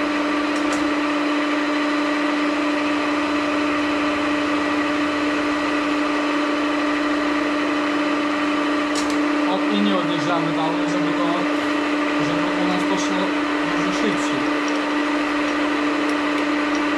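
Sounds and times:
milling machine spindle tone: 0:09.3 - 0:16.9.

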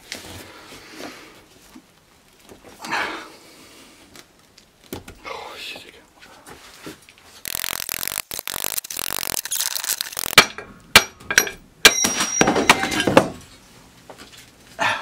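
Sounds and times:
hammer striking metal: 0:10.4 - 0:13.0.

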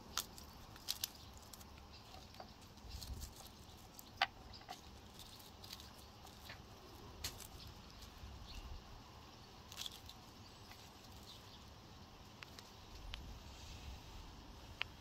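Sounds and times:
onion slices rustling: 0:00.0 - 0:08.4
low background hum: 0:00.0 - 0:15.0.

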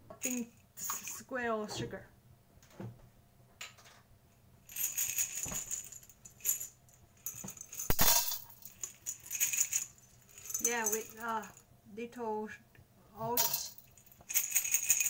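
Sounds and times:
sugar cubes rattling in a wok: 0:13.4 - 0:15.0.

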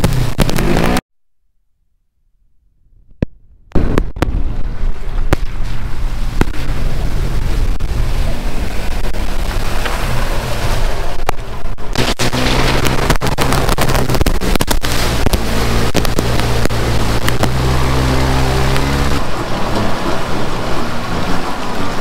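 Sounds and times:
wind noise on microphone: 0:02.9 - 0:21.9
engine running: 0:03.7 - 0:22.0
sharp clicks and crackles: 0:08.7 - 0:17.8.

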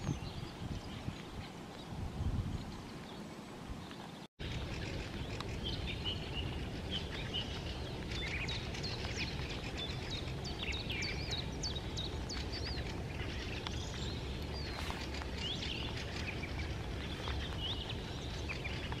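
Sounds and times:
other birdsong: 0:00.0 - 0:19.0
steady low rumble: 0:04.4 - 0:19.0.

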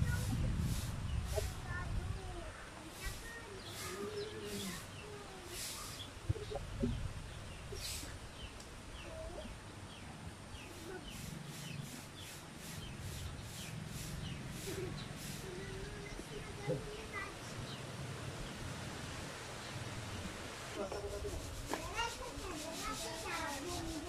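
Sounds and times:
small birds chirping: 0:00.0 - 0:18.7, 0:19.3 - 0:24.0
chickens clucking: 0:02.9 - 0:07.0
short scratchy noises: 0:20.8 - 0:24.0.

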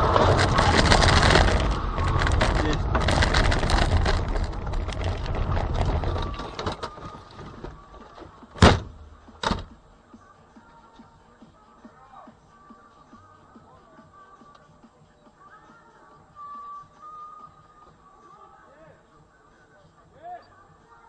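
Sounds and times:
car engine and road noise: 0:00.0 - 0:10.1.

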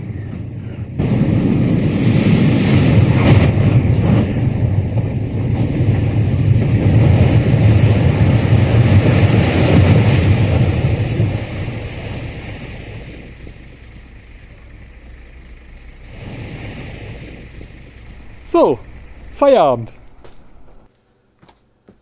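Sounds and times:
deep rumble of tower collapsing: 0:00.3 - 0:13.2.

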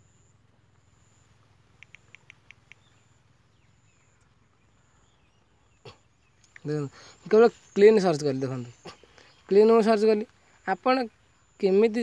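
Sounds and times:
phone keyboard clicks: 0:01.8 - 0:02.9.

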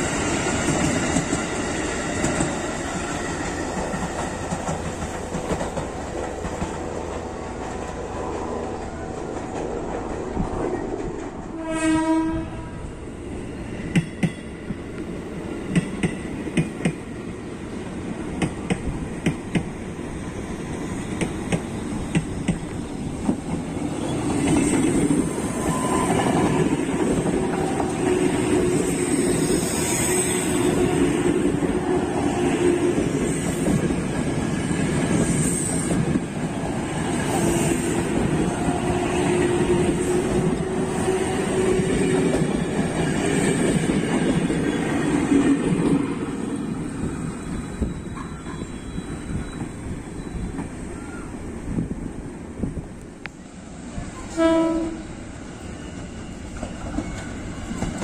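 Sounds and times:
train wheel rumble: 0:00.0 - 0:58.0
train horn blast: 0:11.5 - 0:13.0, 0:54.2 - 0:55.2.

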